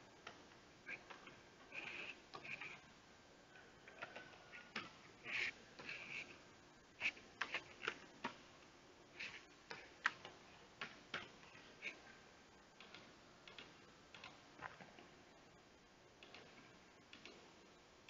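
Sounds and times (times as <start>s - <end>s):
keyboard typing clicks: 12.8s - 15.0s, 16.2s - 17.4s.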